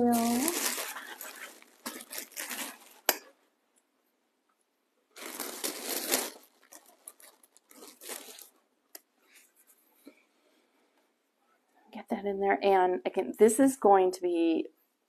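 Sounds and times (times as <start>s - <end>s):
plastic bag crinkling and rustling: 0.0s - 3.4s, 5.1s - 8.6s.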